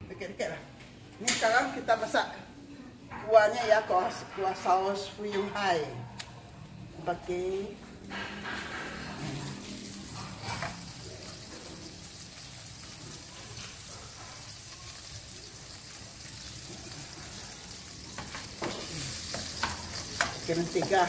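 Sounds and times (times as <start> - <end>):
butter sizzling in frying pan: 8.7 - 21.0.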